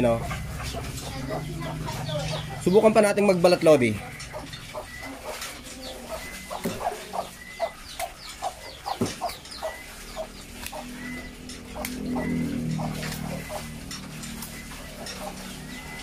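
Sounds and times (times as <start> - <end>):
chickens clucking: 0.0 - 16.0
low hum: 9.4 - 16.0.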